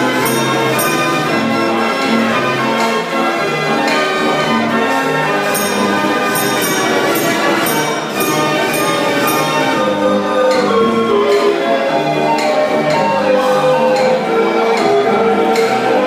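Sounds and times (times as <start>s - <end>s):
fair organ playing a tune: 0.0s - 16.0s
bell strikes: 0.2s - 1.4s, 5.4s - 11.5s.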